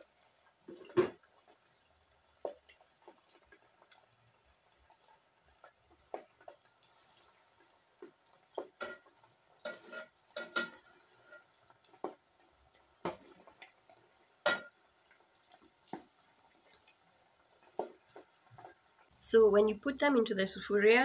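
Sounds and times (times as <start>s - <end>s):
hot oil crackling: 0.0s - 20.2s
metal spoon clinking on pot: 9.7s - 10.9s, 14.4s - 14.7s.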